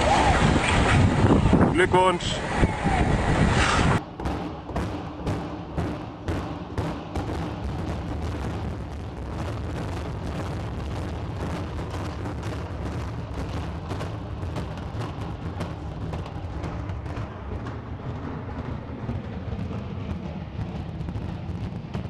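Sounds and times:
crackle of demolition charges: 0.0 - 4.0
deep rumble of collapsing structure: 0.0 - 4.0, 7.5 - 22.0.

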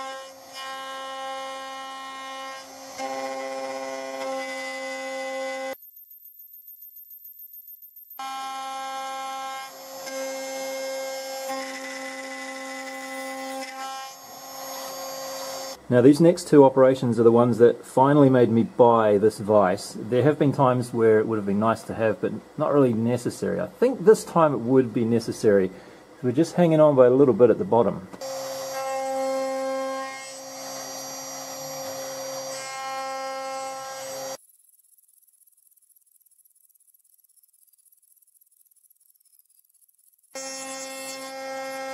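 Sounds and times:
router spindle whine: 0.0 - 15.9, 23.8 - 34.4
router spindle whining: 27.6 - 34.4.

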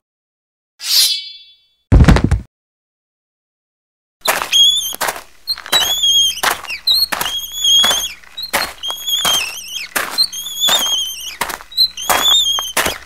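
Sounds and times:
cart wheel squealing and knocking: 4.2 - 13.0.

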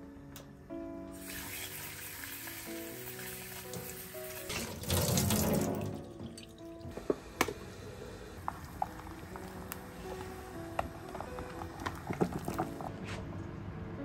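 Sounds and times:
soft background music: 0.0 - 14.0
tap water running into sink: 1.2 - 7.6.

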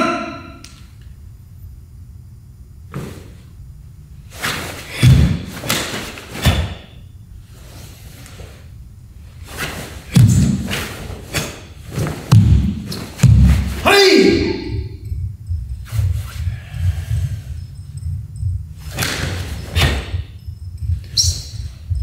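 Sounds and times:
cloth uniform snapping: 5.6 - 6.8
bare feet stamping on wooden floor: 12.0 - 13.7.

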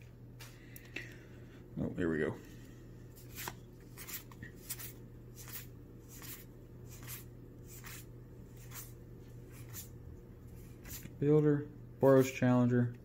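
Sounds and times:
low steady hum: 0.0 - 13.0
soft card swishes: 3.2 - 10.0.

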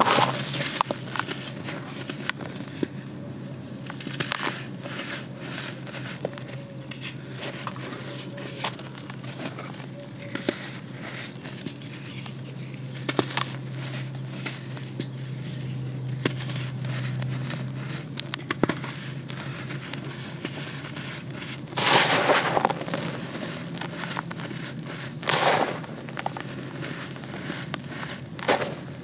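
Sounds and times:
dry dirt crumbling in hands: 0.0 - 29.0
gritty crunching of dirt: 0.0 - 29.0.

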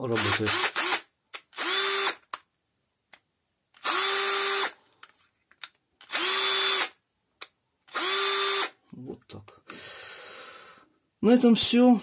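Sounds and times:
cordless drill motor spinning: 0.2 - 2.2, 3.8 - 4.8, 6.0 - 7.0, 7.9 - 8.8.

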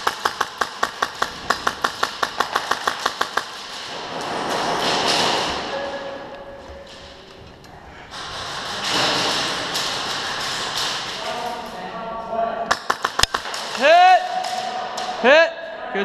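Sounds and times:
airsoft rifle shots: 0.0 - 6.0.

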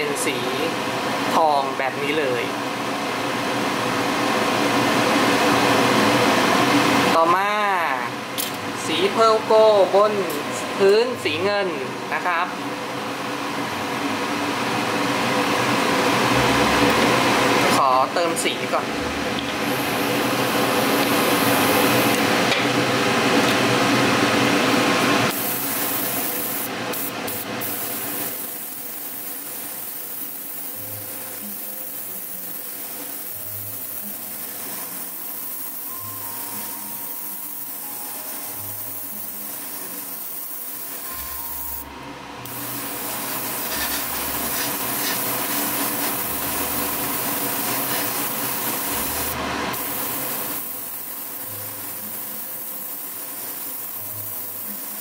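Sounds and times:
airbrush hissing: 25.3 - 55.0.

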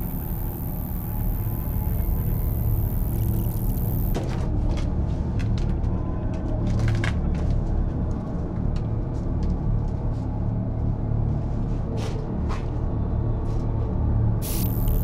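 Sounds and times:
low rumbling drone: 0.0 - 4.2, 14.4 - 15.0
sharp clicks and ticks: 0.0 - 4.2, 14.4 - 15.0.

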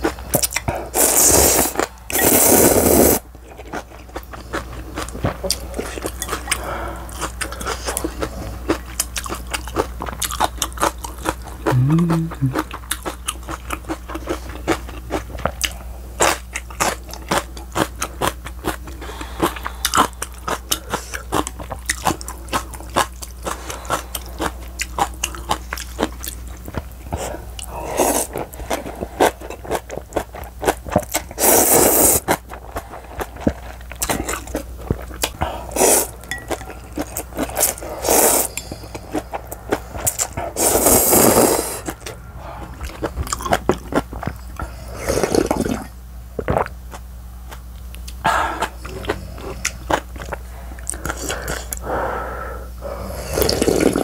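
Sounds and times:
wet chewing and crunching: 0.0 - 2.5, 3.3 - 40.6, 41.8 - 51.9
slurping noodles: 0.9 - 3.2, 31.4 - 32.4, 35.7 - 36.1, 37.4 - 39.2, 40.0 - 42.0, 44.7 - 46.6, 52.8 - 54.0.

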